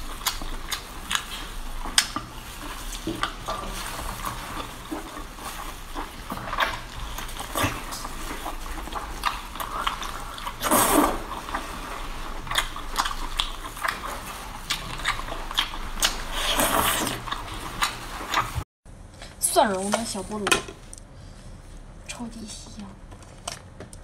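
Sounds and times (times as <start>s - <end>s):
wet smacking and chewing: 0.0s - 18.6s
wet sucking sounds: 0.0s - 18.6s.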